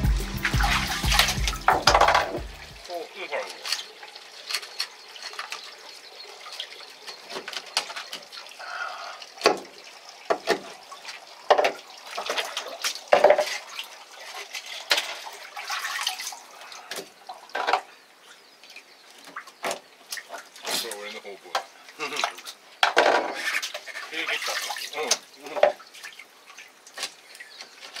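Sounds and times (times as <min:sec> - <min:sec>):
water splashing and trickling: 0:00.0 - 0:28.0
sharp knocks and wet slaps: 0:00.3 - 0:02.8, 0:09.4 - 0:10.8, 0:19.1 - 0:21.7, 0:26.9 - 0:28.0.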